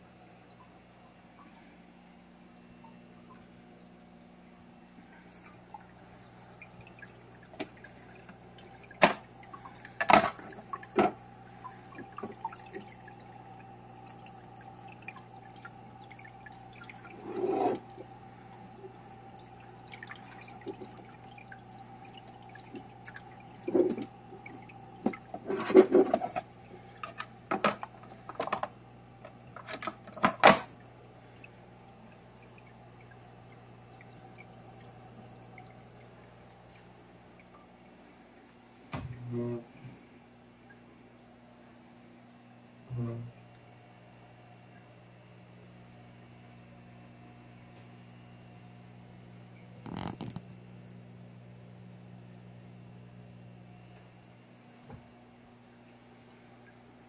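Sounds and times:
water drips and splashes: 0.0 - 39.2
water trickling: 0.0 - 39.6
aquarium filter humming: 0.0 - 57.0.

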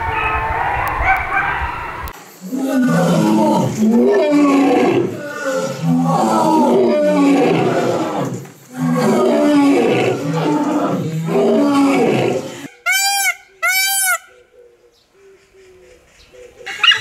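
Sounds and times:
lions roaring: 2.4 - 12.7
peacock calls: 2.4 - 17.0.

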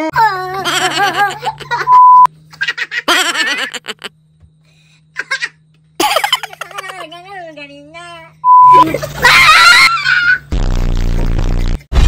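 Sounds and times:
man and woman laughing: 0.6 - 2.0, 2.6 - 4.2, 5.2 - 6.9, 8.8 - 10.4
censor bleep: 1.9 - 2.3, 8.4 - 8.9.

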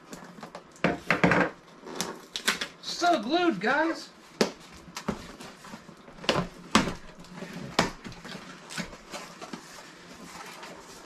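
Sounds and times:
cardboard rustling: 4.6 - 11.0.

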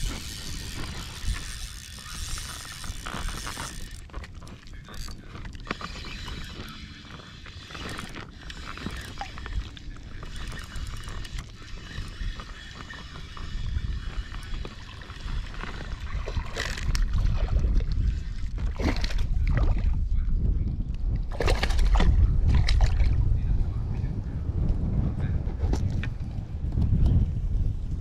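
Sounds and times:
fishing reel cranking: 0.0 - 17.2
wind noise on microphone: 0.0 - 28.0.

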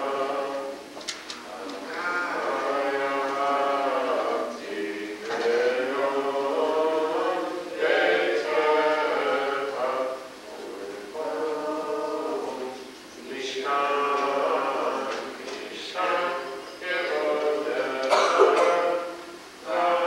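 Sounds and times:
person chanting prayer: 1.5 - 20.0.

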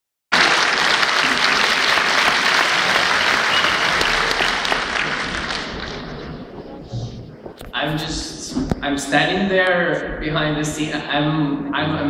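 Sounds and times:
audience applauding: 0.3 - 7.7.

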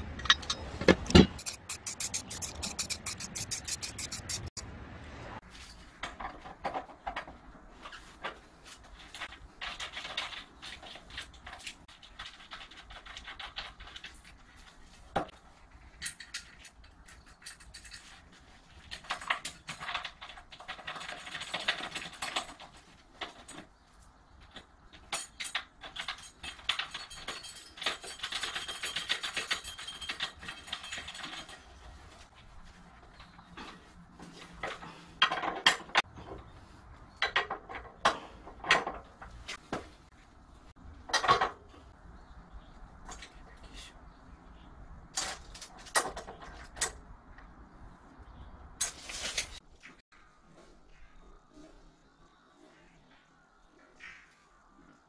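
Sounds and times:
metal bracket clinking and scraping: 0.0 - 4.6
sharp click: 0.2 - 4.7.

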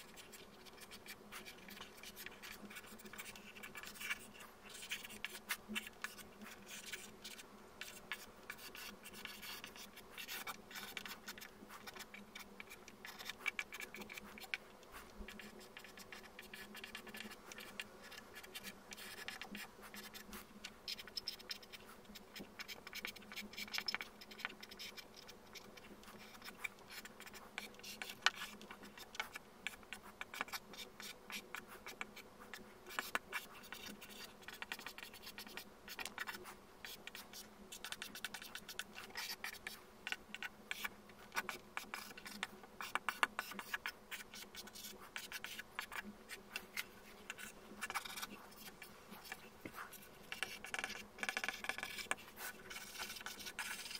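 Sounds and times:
pencil scratching on paper: 0.0 - 53.9.

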